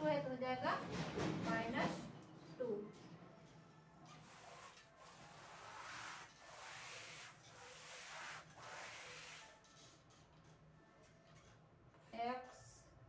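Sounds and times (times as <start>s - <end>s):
duster rubbing on blackboard: 4.1s - 9.6s.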